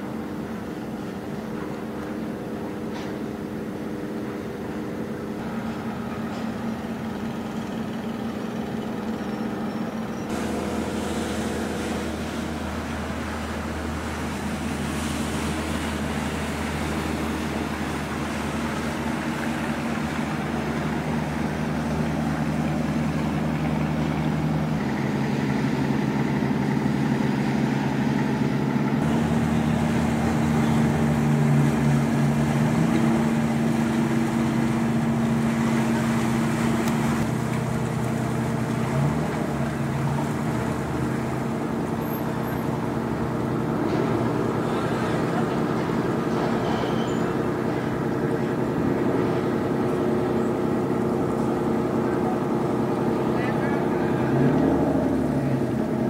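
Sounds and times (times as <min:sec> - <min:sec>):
ship diesel engines droning: 0:00.0 - 0:56.0
water hissing: 0:10.3 - 0:24.7, 0:29.0 - 0:43.0.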